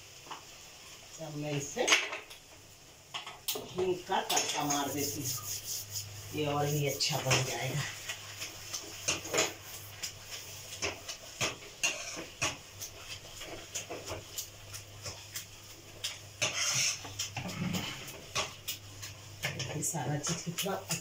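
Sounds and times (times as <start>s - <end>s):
metal spoon scraping a pan: 4.2s - 15.4s, 16.0s - 21.0s.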